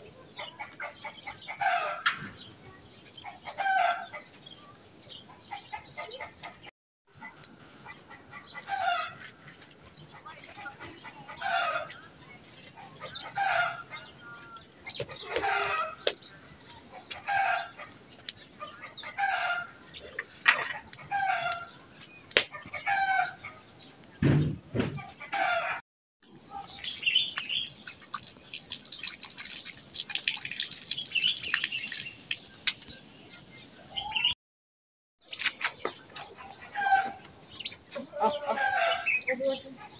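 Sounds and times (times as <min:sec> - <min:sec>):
tap water splashing on stone: 0:26.8 - 0:32.9.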